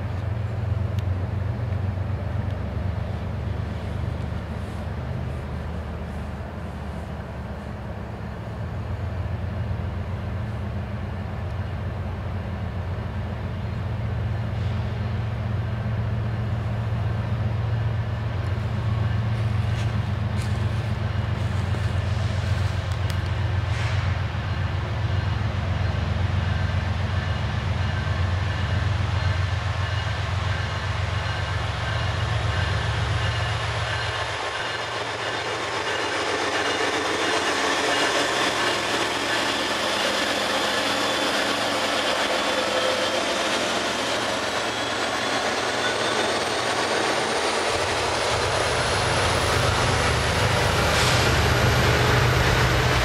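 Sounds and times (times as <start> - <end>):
freight train rumbling: 0.0 - 53.0
locomotive engine and rail noise: 0.0 - 53.0.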